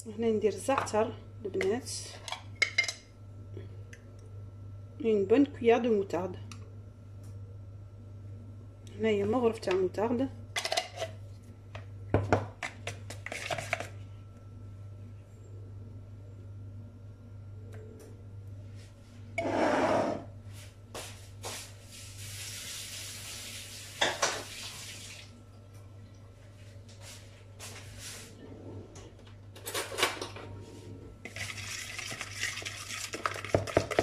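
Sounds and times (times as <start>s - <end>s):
steady low hum: 0.0s - 22.3s, 25.2s - 33.3s
spoon scraping plastic bowl: 12.7s - 13.9s
stirring spice paste: 31.3s - 34.0s.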